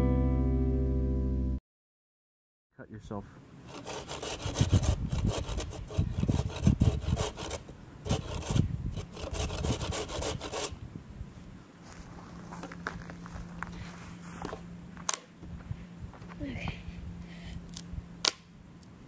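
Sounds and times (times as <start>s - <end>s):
hand saw cutting wood: 3.7s - 10.8s.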